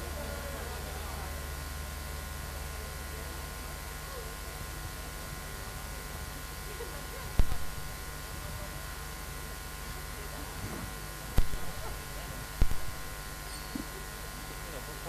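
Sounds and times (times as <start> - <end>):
faint distant voices: 0.0 - 15.0
low electrical hum: 0.0 - 15.0
sharp knock: 12.6 - 13.0.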